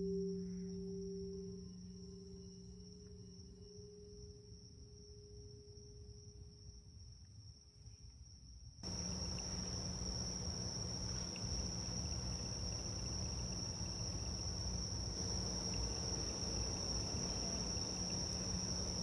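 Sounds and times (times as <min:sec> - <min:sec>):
crickets chirring: 0:00.0 - 0:19.0
faint low hum: 0:08.8 - 0:19.0.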